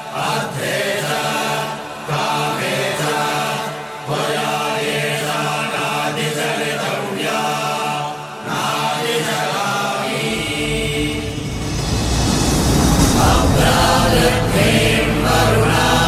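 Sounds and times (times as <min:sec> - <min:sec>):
mantra chanting with music: 0:00.0 - 0:11.7, 0:13.0 - 0:16.0
deep bass: 0:10.3 - 0:16.0.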